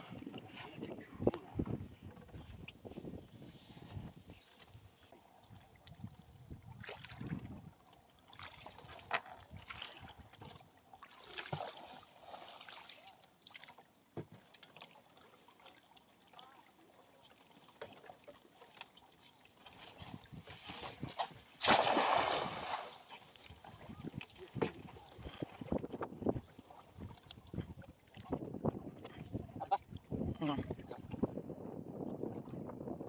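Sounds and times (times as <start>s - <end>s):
water lapping against hull: 0.0s - 33.0s
soft knocks from boat: 14.1s - 14.8s, 23.5s - 29.3s.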